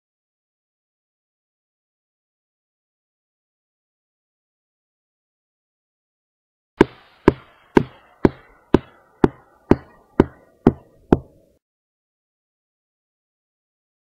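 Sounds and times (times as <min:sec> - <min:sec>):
hard footsteps: 0:06.8 - 0:11.4.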